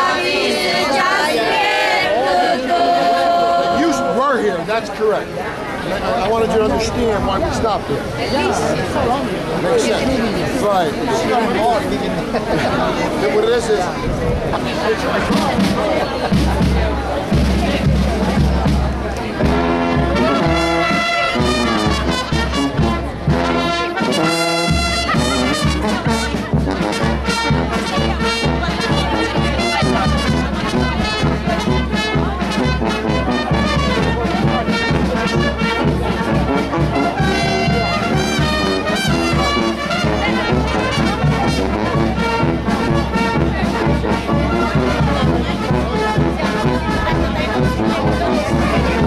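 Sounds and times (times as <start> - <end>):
brass band playing: 0.0 - 13.7, 14.5 - 49.0.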